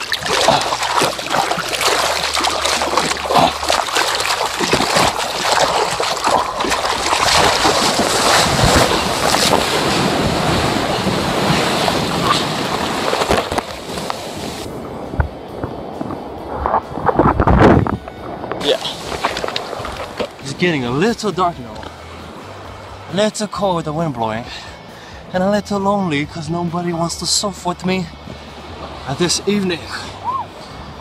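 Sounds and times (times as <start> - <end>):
breaking wave rushing and splashing: 0.0 - 21.1.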